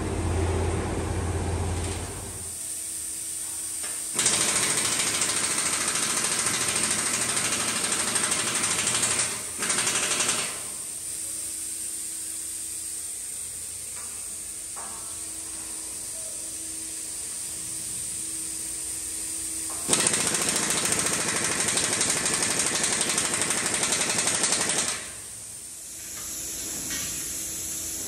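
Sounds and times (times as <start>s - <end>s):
steady machine hum: 0.0s - 3.2s
power tool rattling: 4.1s - 10.7s, 19.8s - 25.2s.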